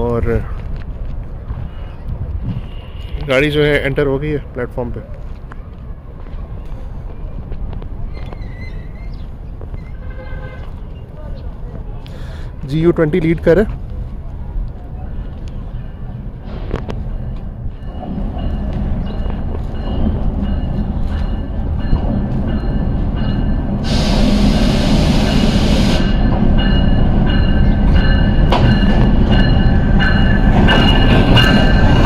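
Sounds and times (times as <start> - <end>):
wheels squealing: 8.0 - 11.1
loud hiss: 23.8 - 26.2.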